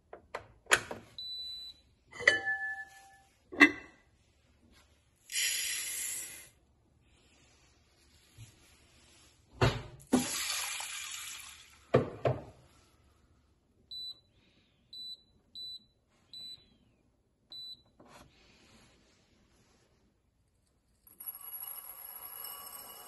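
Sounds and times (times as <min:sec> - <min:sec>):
water pouring into rice: 0:10.1 - 0:11.9.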